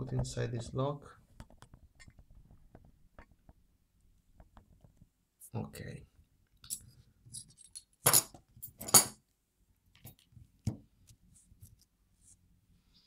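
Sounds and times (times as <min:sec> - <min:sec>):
metal clinks and clatters: 0:06.7 - 0:09.2.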